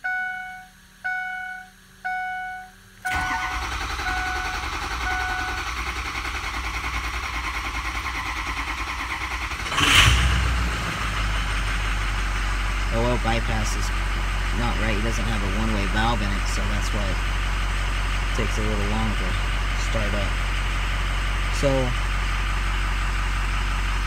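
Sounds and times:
diesel engine cranking and starting: 3.0 - 24.0.

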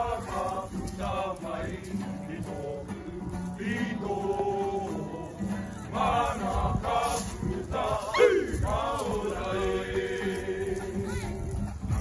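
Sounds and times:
group singing in unison: 0.0 - 11.1.

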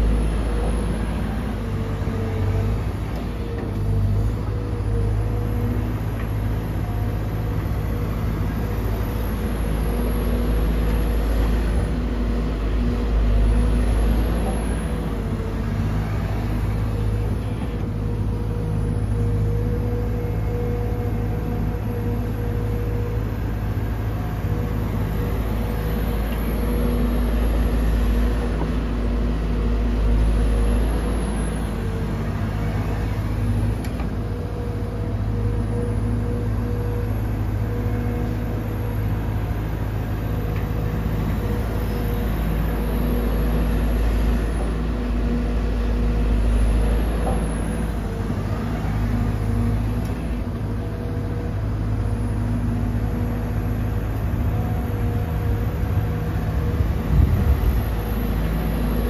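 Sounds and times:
excavator diesel engine under load: 0.0 - 59.0
hydraulic whine: 0.0 - 59.0.

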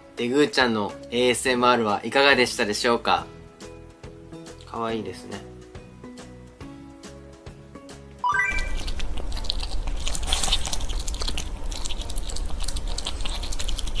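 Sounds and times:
quiet background music: 0.0 - 14.0
rising chime notes: 8.2 - 9.0
pet crunching food: 8.7 - 14.0.

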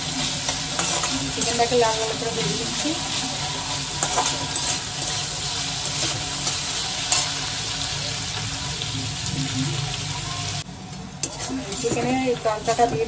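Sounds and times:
chicken sizzling in a pan: 0.0 - 13.0.

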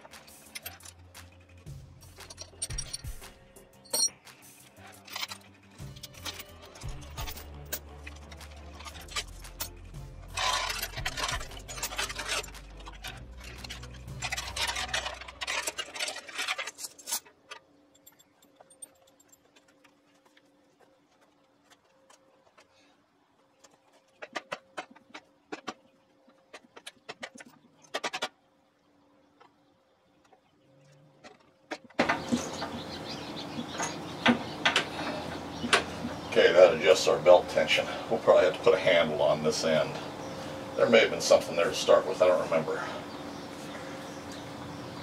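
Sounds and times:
metal scraping and rubbing: 0.0 - 22.6
light metal clicks and clinks: 2.2 - 4.2
low hum: 4.8 - 19.8.

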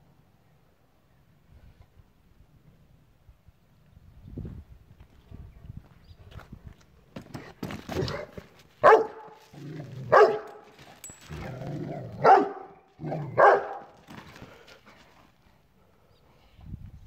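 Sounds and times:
dog barking: 8.1 - 9.4, 10.1 - 10.6, 12.2 - 14.0.

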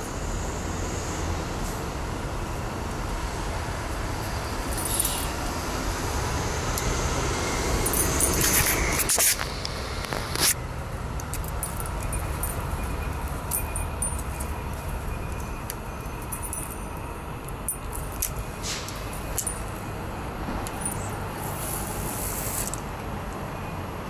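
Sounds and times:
urban background rumble: 0.0 - 24.0
short hiss: 21.4 - 22.8.

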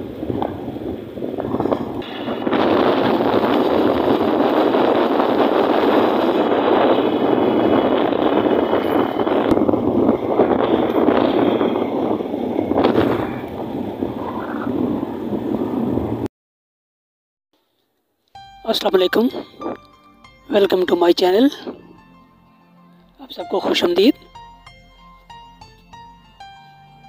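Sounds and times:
road noise: 0.0 - 16.3, 18.3 - 27.0
wind rushing over microphone: 0.0 - 16.3, 18.7 - 19.9, 20.5 - 22.2
motorcycle engine: 1.3 - 13.9.

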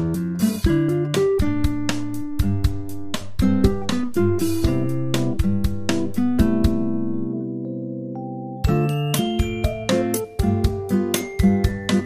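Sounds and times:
quick plucked notes: 0.7 - 7.5
held low bass note: 2.6 - 7.4.

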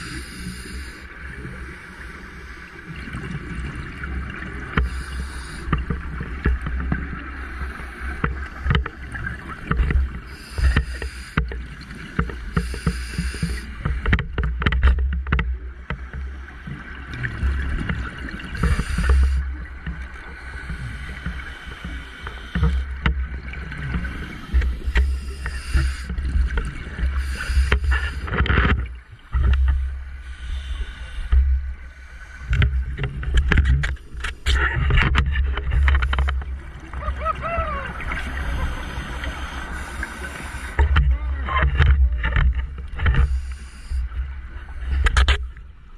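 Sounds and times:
scuba gear hissing and bubbling: 0.0 - 14.0, 17.3 - 28.4, 29.3 - 33.0, 35.8 - 40.9, 43.2 - 44.3
muffled underwater rumble: 0.0 - 45.9.

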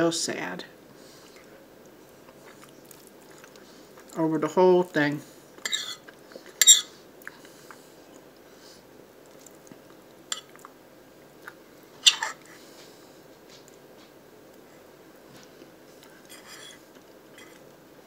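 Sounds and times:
quiet chewing: 0.9 - 4.2, 5.6 - 17.8
fork scraping a plate: 5.6 - 6.0, 16.3 - 16.8, 17.4 - 17.6.

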